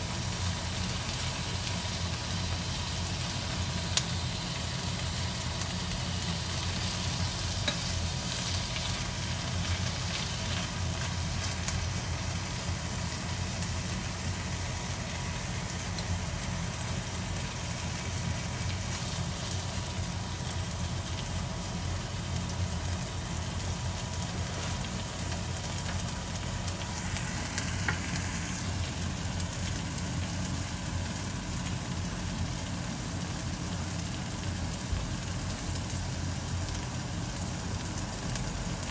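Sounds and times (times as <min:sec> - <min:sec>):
batter sizzling in frying pan: 0:00.0 - 0:38.9
chopsticks tapping and scraping: 0:07.6 - 0:08.0.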